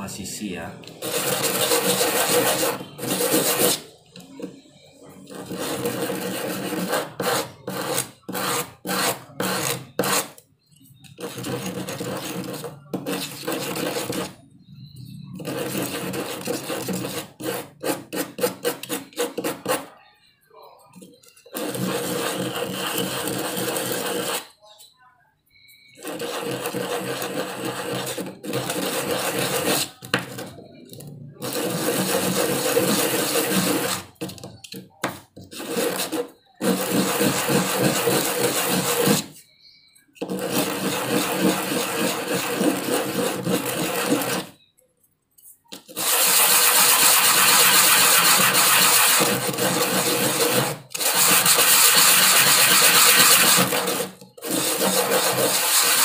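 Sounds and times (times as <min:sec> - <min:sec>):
wood rubbed on sandpaper: 0:01.0 - 0:03.8, 0:21.5 - 0:24.5, 0:26.0 - 0:30.0, 0:31.4 - 0:34.2, 0:35.5 - 0:39.4, 0:40.2 - 0:44.5, 0:45.9 - 0:56.0.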